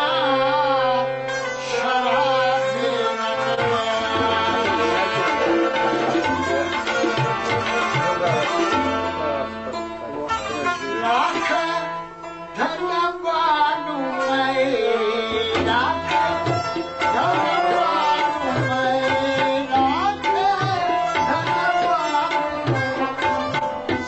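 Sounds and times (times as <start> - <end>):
harmonium melody: 0.0 - 24.0
tabla drumming: 2.2 - 9.6, 14.6 - 24.0.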